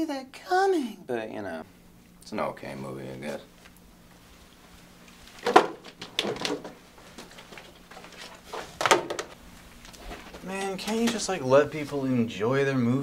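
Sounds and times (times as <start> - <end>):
faint steady low hum: 0.0 - 13.0
knocks and handling sounds: 5.1 - 11.3.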